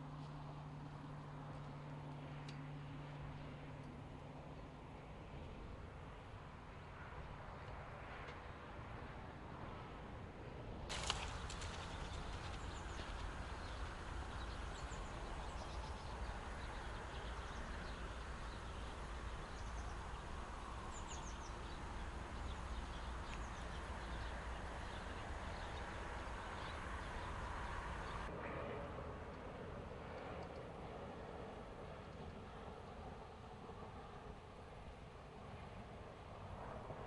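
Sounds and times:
small birds chirping: 0:10.9 - 0:28.3
steady low rumble: 0:10.9 - 0:29.9.

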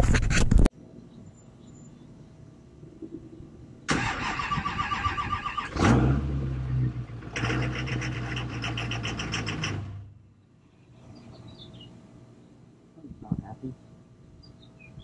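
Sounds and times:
diesel engine clattering: 0:03.9 - 0:10.2.

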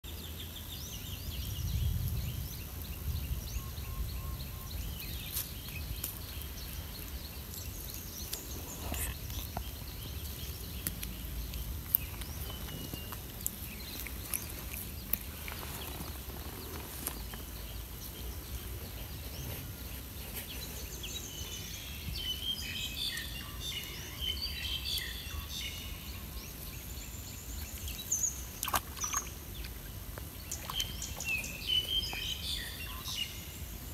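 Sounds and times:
bird chirps: 0:00.2 - 0:29.7, 0:30.4 - 0:33.5.

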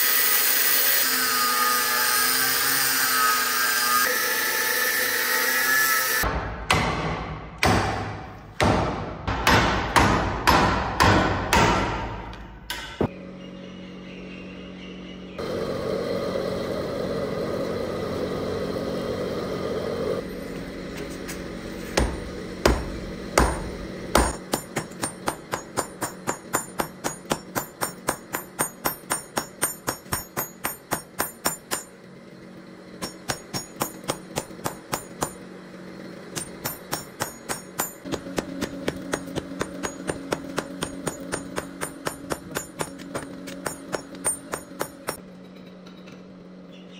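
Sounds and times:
hammer striking metal on anvil: 0:06.2 - 0:13.1, 0:22.0 - 0:32.0, 0:33.0 - 0:35.4, 0:36.3 - 0:45.2.

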